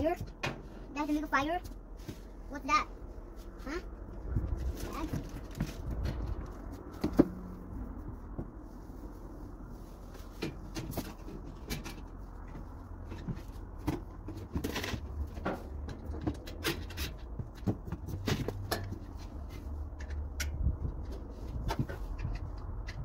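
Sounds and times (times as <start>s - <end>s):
hardware clicks and knocks: 10.4s - 23.0s.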